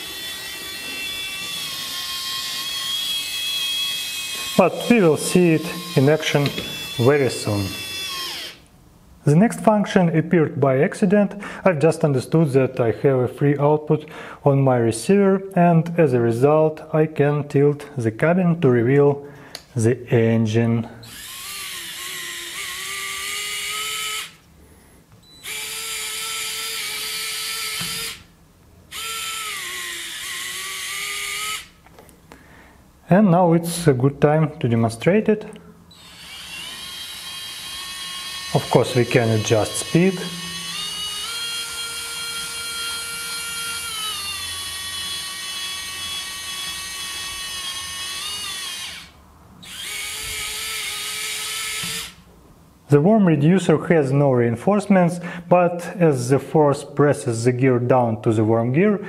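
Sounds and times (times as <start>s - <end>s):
electric micro motor whining: 0.0s - 4.9s, 5.5s - 7.0s, 7.7s - 8.6s, 21.1s - 24.4s, 28.9s - 31.7s, 35.9s - 52.2s.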